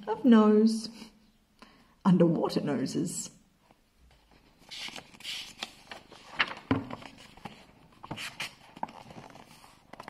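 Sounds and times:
paper pages rustling: 4.1 - 10.0.

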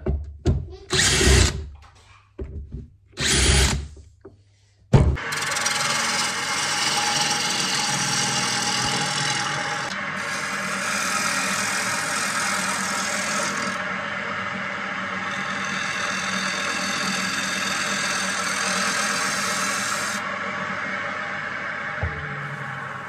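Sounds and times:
turning tool cutting wood: 0.9 - 1.6, 3.2 - 3.9, 5.2 - 20.3
lathe humming: 5.2 - 23.0.

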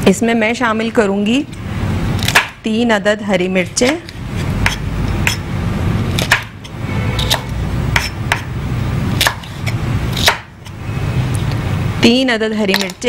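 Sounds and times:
knife chopping on wooden board: 4.6 - 5.4, 6.2 - 6.6, 7.2 - 8.5, 9.2 - 10.5.

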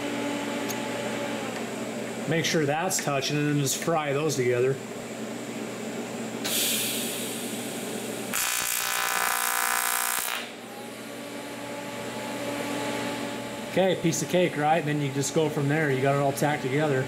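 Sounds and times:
hiss: 6.4 - 7.7
welding arc buzzing: 8.2 - 10.7.

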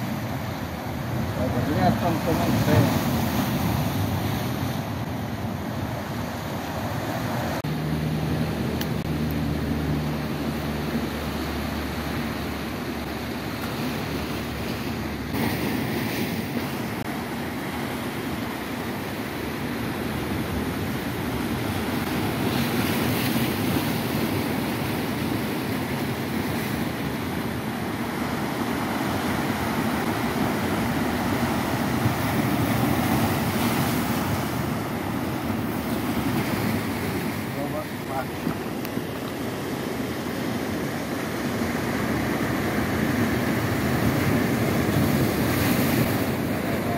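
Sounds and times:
sea surf breaking over rocks: 0.0 - 46.9.

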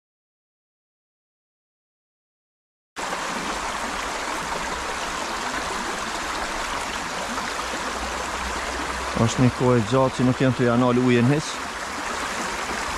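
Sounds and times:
river rushing over rocks: 3.0 - 12.9.

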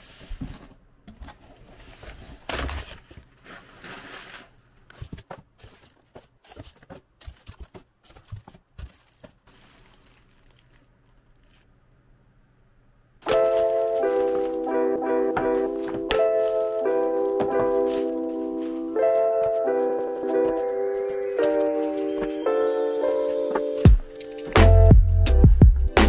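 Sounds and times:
plastic bags crinkling: 2.3 - 11.8, 13.2 - 23.5
cardboard box being opened: 13.3 - 20.7.

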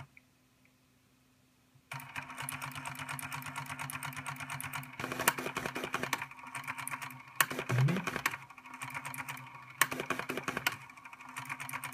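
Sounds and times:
rapid plotter clicking: 1.9 - 11.9
stepper motor buzz: 7.5 - 8.3.

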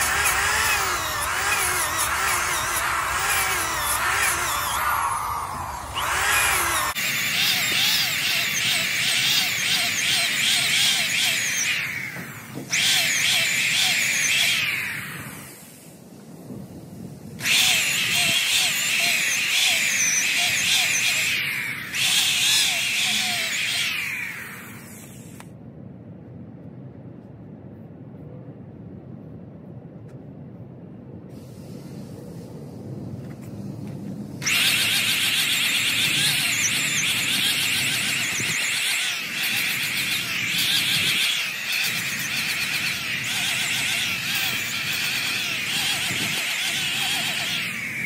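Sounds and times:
power sander grinding rubber: 0.0 - 15.6, 17.4 - 25.4, 34.4 - 48.0.

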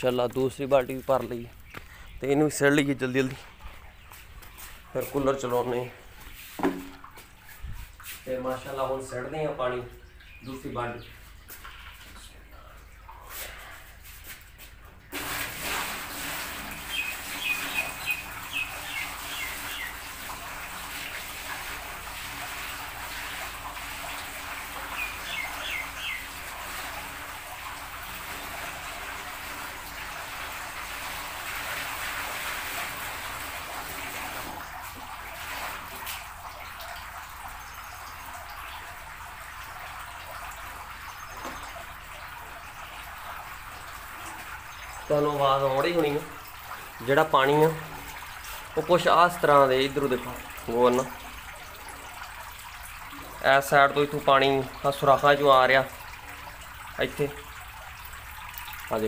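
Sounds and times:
birds chirping: 0.0 - 14.9, 16.8 - 20.8, 24.1 - 26.6, 37.1 - 39.2, 40.7 - 47.9
water pouring into metal tank: 0.0 - 59.0
water trickling: 0.0 - 59.0.

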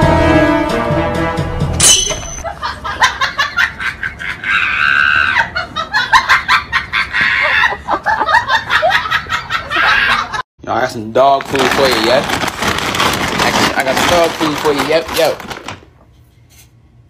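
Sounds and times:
person laughing in bursts: 2.4 - 10.4.

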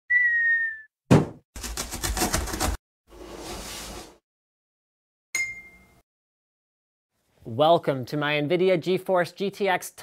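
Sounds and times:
sliding whistle-like tone: 0.1 - 0.9
thump: 1.1 - 1.4.

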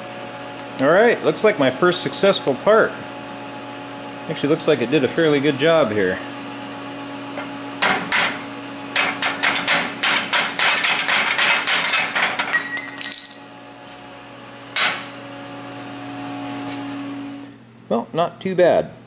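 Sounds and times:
metal knocks and clanks: 7.4 - 13.3
ringing metal clang: 12.5 - 13.6.

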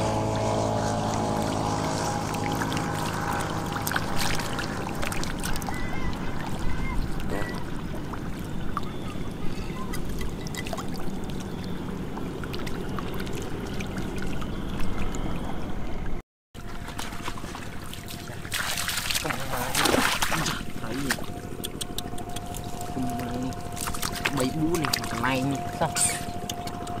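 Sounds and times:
fish splashing in shallow water: 0.0 - 15.6, 16.6 - 27.0
sharp water slaps: 0.7 - 7.6, 16.9 - 22.8, 23.7 - 25.7.

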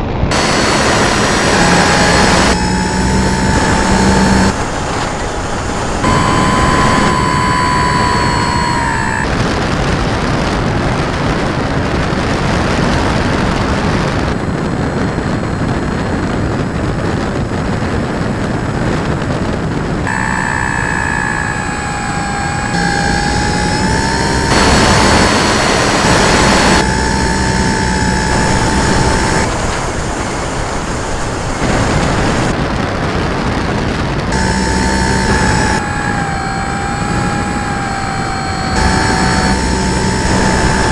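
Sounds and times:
electric model plane motor whining: 0.3 - 9.3, 20.1 - 32.5, 34.3 - 40.9.

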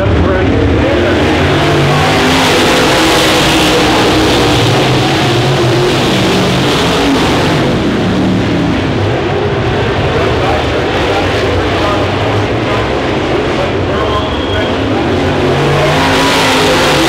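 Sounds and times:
race car engines revving: 0.0 - 17.0.

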